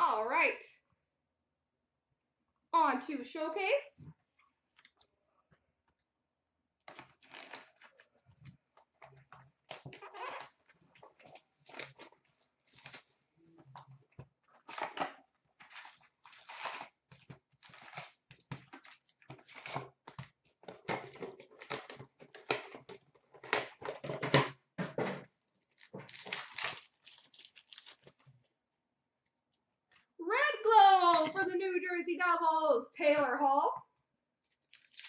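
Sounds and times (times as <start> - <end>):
foil packs tearing and crinkling: 6.9 - 8.1, 11.6 - 13.1, 15.6 - 20.0, 25.7 - 28.2, 34.6 - 35.0.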